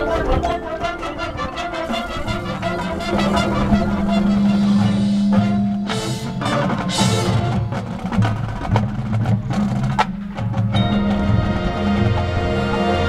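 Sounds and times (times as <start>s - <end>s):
marching band playing: 0.0s - 13.0s
cymbal crashes: 3.0s - 7.6s.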